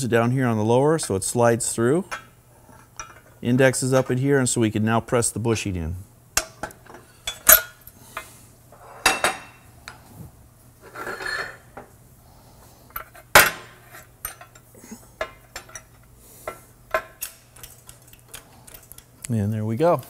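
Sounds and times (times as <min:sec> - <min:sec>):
faint steady hum: 0:00.0 - 0:20.0
metal scrape: 0:10.8 - 0:11.8
steel parts knocking and clinking: 0:14.2 - 0:19.1.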